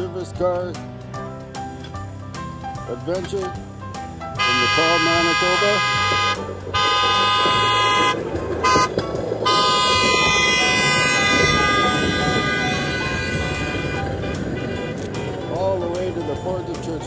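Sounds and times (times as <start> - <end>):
truck horn tooting: 4.3 - 15.8.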